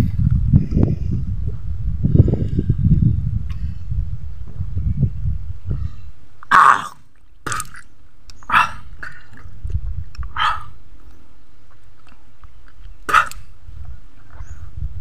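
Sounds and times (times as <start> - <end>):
man coughing and sputtering: 13.1 - 13.4.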